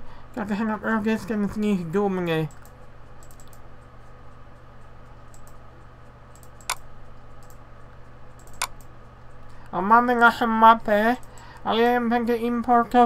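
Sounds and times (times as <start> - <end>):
steady low hum: 0.0 - 13.0
computer mouse clicking: 2.5 - 3.7, 4.5 - 5.6, 6.3 - 8.9.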